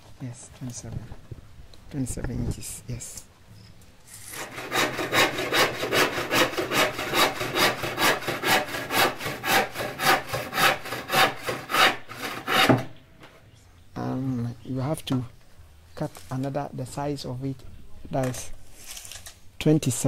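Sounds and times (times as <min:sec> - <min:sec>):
handsaw cutting wood: 0:04.1 - 0:12.9.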